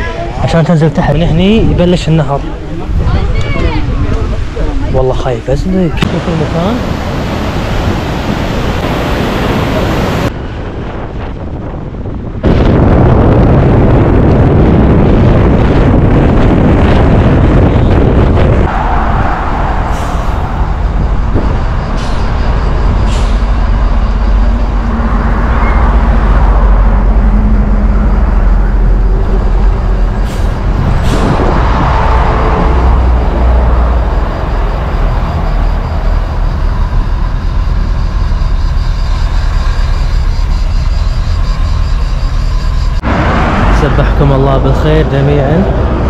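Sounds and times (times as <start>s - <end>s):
wind noise: 0.0s - 46.0s
car engine and tyre rumble: 13.5s - 46.0s.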